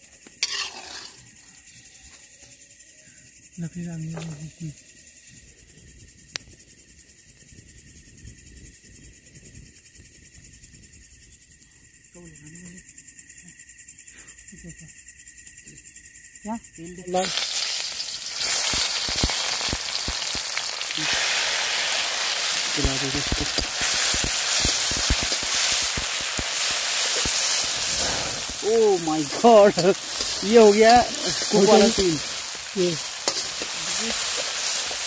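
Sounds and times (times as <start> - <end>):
night insects chirring: 0.0 - 35.0
tomatoes sizzling in hot oil: 0.4 - 1.2, 17.1 - 35.0.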